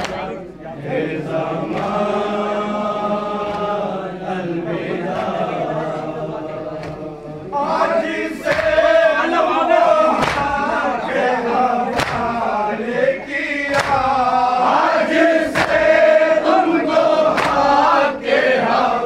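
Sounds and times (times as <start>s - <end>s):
men chanting in unison: 0.7s - 19.0s
chest beating slaps: 3.4s - 3.8s, 6.8s - 7.1s, 8.4s - 8.9s, 10.1s - 10.7s, 11.9s - 12.4s, 13.7s - 14.2s, 17.3s - 17.7s.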